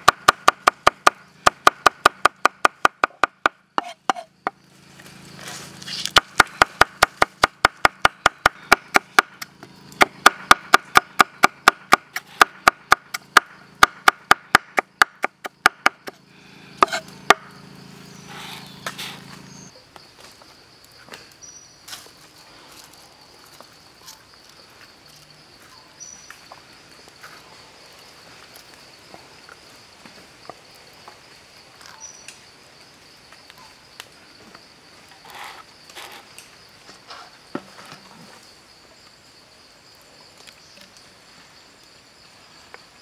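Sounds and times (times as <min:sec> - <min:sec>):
cleaver chopping on wooden block: 0:00.0 - 0:04.3, 0:06.1 - 0:16.2, 0:16.8 - 0:17.5
high insect buzz: 0:00.0 - 0:43.0.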